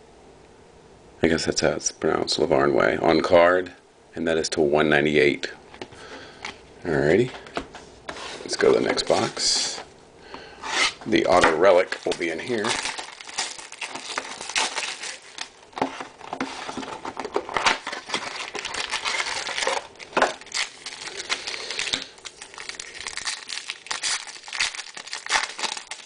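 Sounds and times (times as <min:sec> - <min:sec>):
plastic shrink wrap crinkling: 0:10.8 - 0:26.0
foil pack crinkling: 0:11.2 - 0:26.0.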